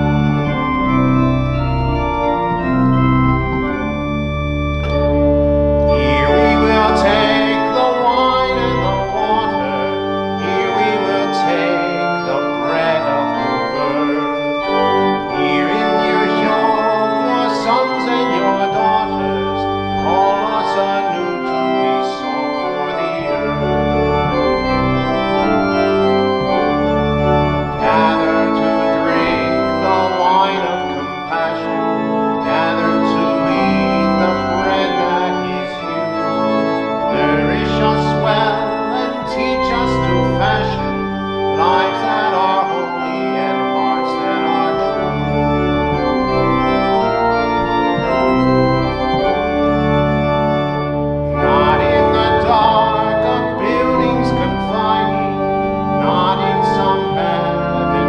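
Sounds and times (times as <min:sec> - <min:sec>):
deep bass line: 0:00.0 - 0:07.6
organ playing sustained chords: 0:00.0 - 0:58.0.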